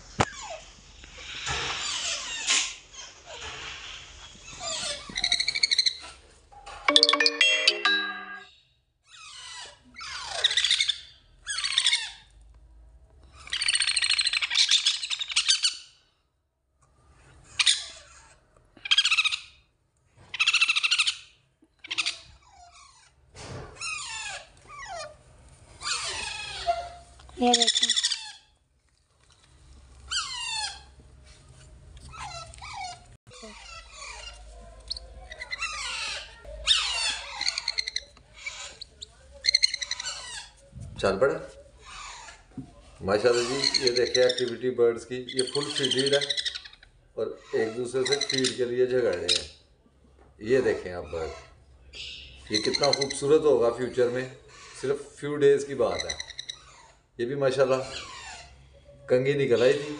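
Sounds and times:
parrot chicks begging calls: 9.1 - 12.4, 13.3 - 16.0, 17.4 - 19.7, 20.3 - 23.2, 23.8 - 25.2, 25.8 - 28.6, 30.0 - 31.0, 32.1 - 40.6, 43.1 - 49.6, 50.7 - 59.9.

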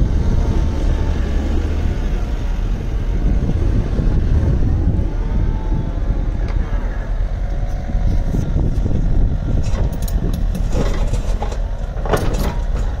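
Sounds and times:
excavator diesel engine running: 0.0 - 13.0
metallic clanks: 9.6 - 13.0.

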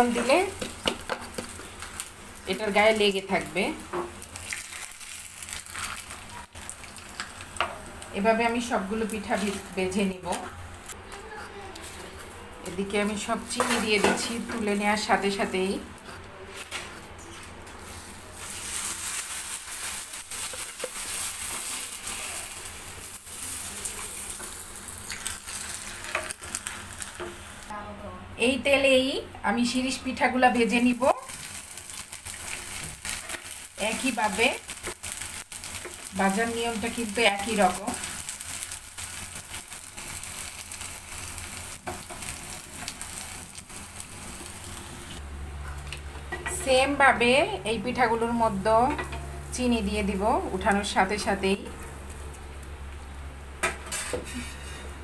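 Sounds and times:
oil sizzling in a frying pan: 0.0 - 11.0, 17.9 - 27.7, 29.7 - 45.2.

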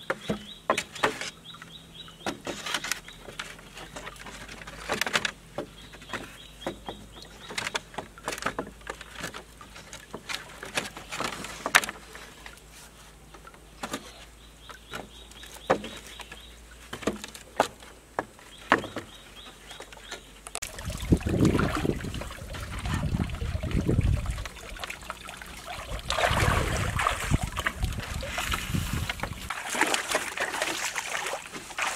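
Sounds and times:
bamboo poles knocking together: 0.0 - 1.4, 2.2 - 12.6, 13.3 - 20.7
running water rushing: 20.6 - 31.9.

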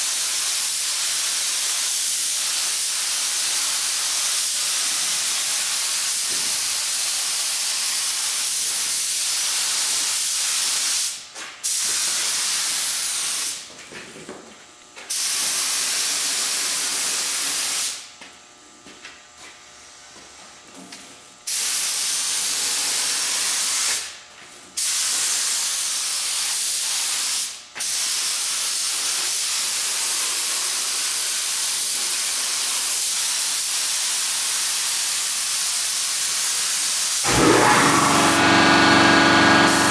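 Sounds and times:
spray gun hissing: 36.2 - 39.9.

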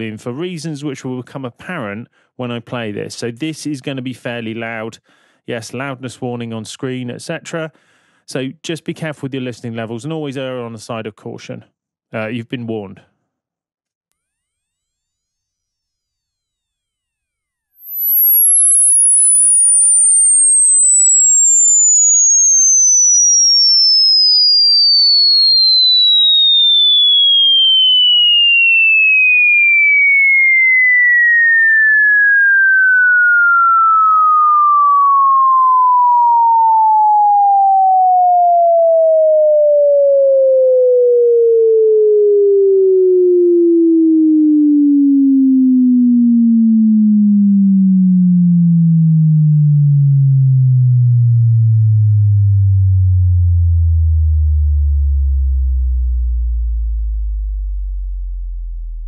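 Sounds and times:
sine wave tone sweeping down: 14.3 - 59.0.

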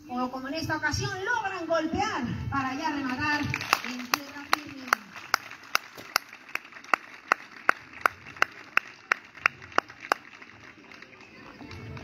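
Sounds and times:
hand claps in steady rhythm: 3.1 - 12.0.

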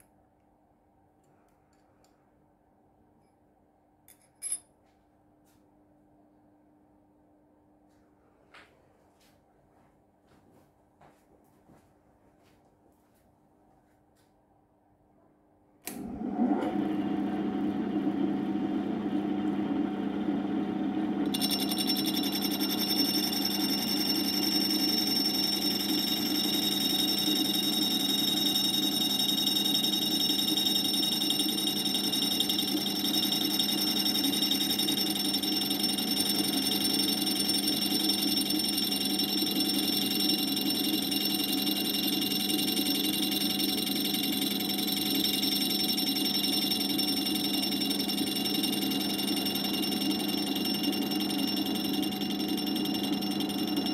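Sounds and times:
lathe motor humming: 16.0 - 53.9.

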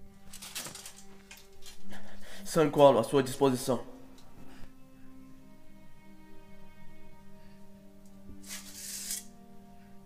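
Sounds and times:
soft background music: 0.0 - 10.0
brief hissing rustle: 8.4 - 9.3.

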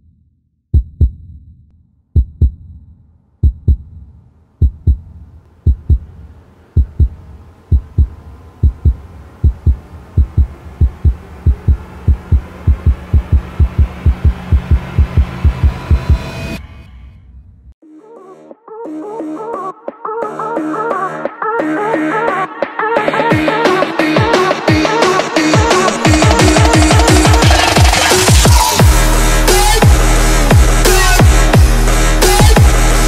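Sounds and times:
heartbeat thumps: 0.8 - 1.6, 2.2 - 16.3
swell of noise and tones: 5.7 - 17.8.

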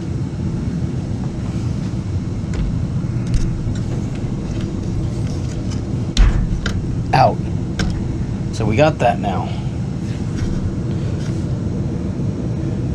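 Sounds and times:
low background rumble: 0.0 - 12.9.

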